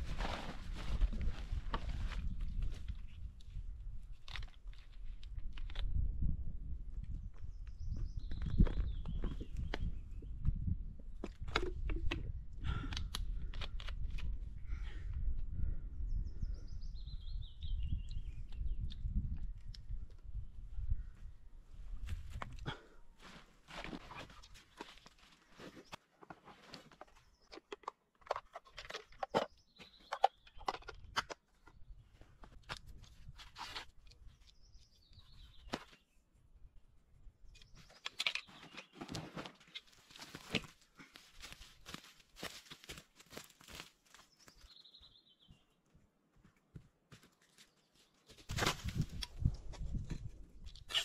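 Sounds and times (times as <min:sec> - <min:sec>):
dry sticks and leaves crunching: 0:37.8 - 0:44.8, 0:47.1 - 0:51.0.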